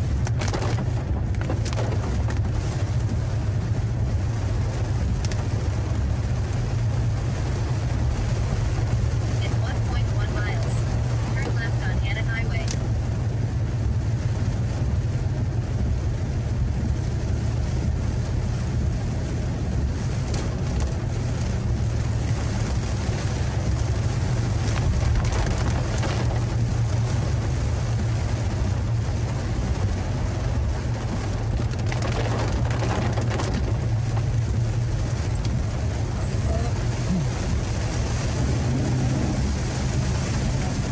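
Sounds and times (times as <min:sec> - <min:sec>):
car engine and tyre rumble: 0:00.0 - 0:40.9.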